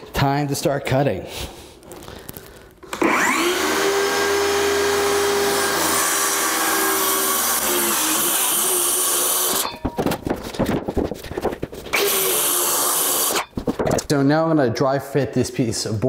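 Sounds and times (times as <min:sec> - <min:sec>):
circular saw cutting wood: 0:03.0 - 0:09.8, 0:11.9 - 0:13.5.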